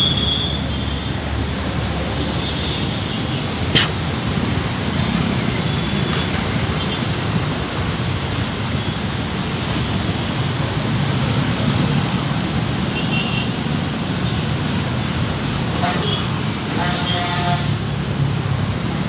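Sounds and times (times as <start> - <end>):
jet engines low roar: 1.1 - 13.0.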